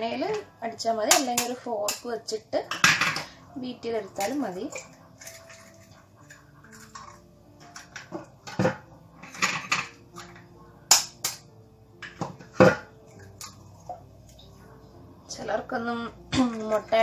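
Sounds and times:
eggs tapping and cracking: 0:01.1 - 0:02.1, 0:04.0 - 0:14.4.

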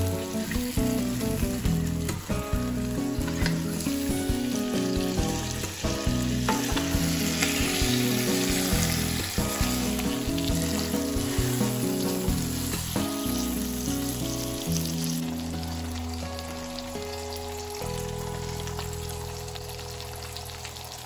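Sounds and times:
chicken sizzling in hot oil: 0:00.0 - 0:21.0
soft bossa nova music: 0:00.0 - 0:21.0
utensils knocking against pot: 0:06.5 - 0:07.6.

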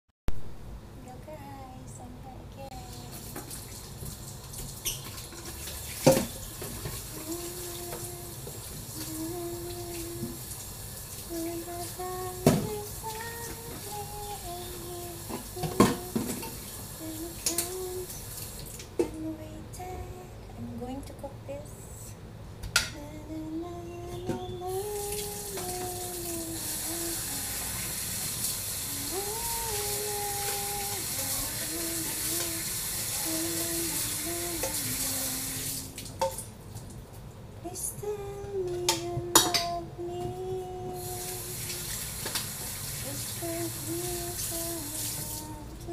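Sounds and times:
steady hum-like tone: 0:00.4 - 0:03.8, 0:05.3 - 0:45.9
tap water running into sink: 0:03.1 - 0:17.7, 0:25.0 - 0:36.4, 0:41.1 - 0:45.4.

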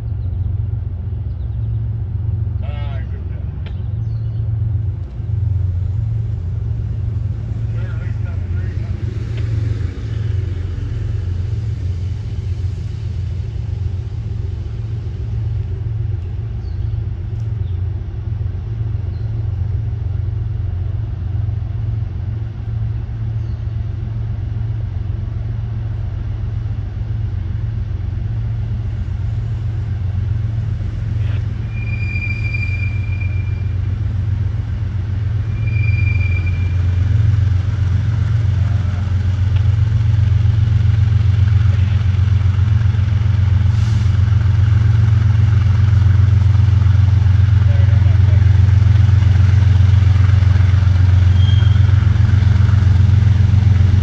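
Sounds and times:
locomotive engine drone: 0:00.0 - 0:54.0
high-pitched whistling tones: 0:31.2 - 0:33.9, 0:35.4 - 0:37.2, 0:51.3 - 0:52.0.

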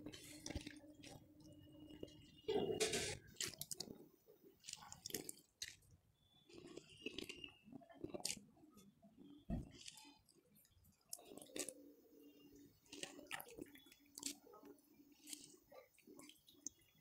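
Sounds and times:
wet squelches in water: 0:09.4 - 0:17.0.

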